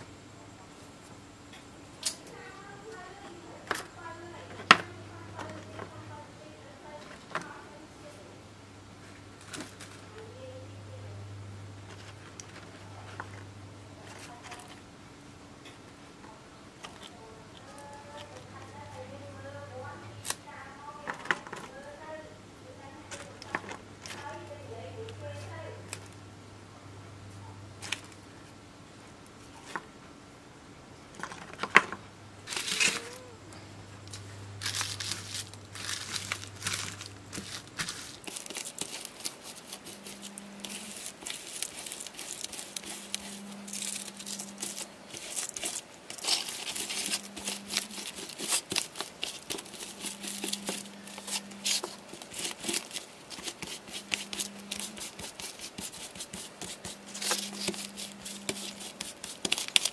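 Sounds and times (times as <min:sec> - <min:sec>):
foil crinkling and crackling: 0:32.4 - 0:33.4, 0:34.1 - 0:59.9.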